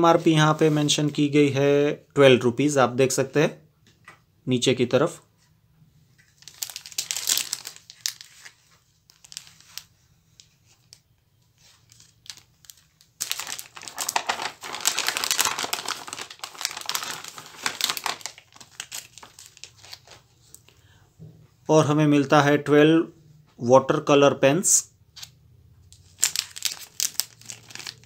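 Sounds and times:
plastic packaging crinkling: 0:06.2 - 0:11.0, 0:11.6 - 0:20.6, 0:25.9 - 0:28.0.

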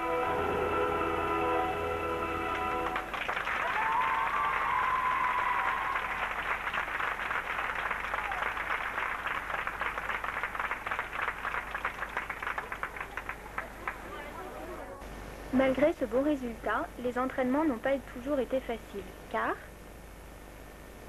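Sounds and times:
music: 0:00.0 - 0:03.2
crowd clapping: 0:02.4 - 0:14.9
high drawn-out cheer: 0:02.9 - 0:14.6.

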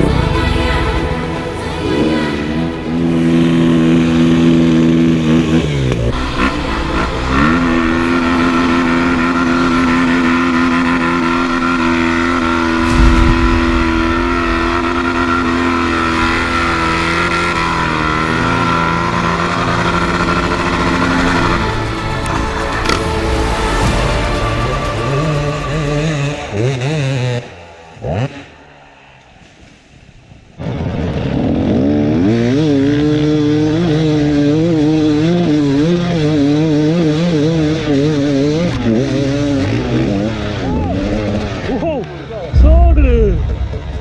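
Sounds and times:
motorcycle engine at high revs: 0:01.9 - 0:23.0, 0:25.1 - 0:28.8, 0:30.6 - 0:42.6
heavy low thump: 0:12.8 - 0:16.6, 0:42.6 - 0:44.0.

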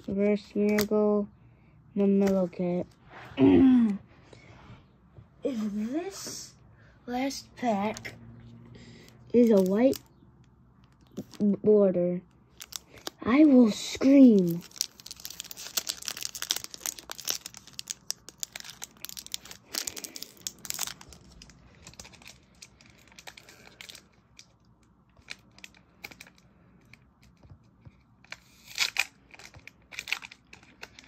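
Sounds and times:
foil wrapper tearing and crinkling: 0:09.4 - 0:10.0, 0:12.5 - 0:13.2, 0:14.0 - 0:24.5, 0:28.3 - 0:31.0.

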